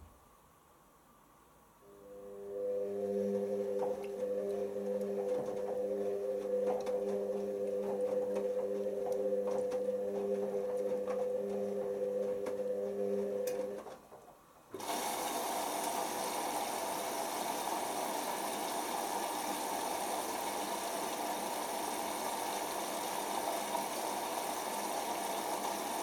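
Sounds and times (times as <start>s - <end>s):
washing machine drum motor humming: 2.2s - 13.9s, 14.7s - 26.0s
water rushing in: 14.8s - 26.0s.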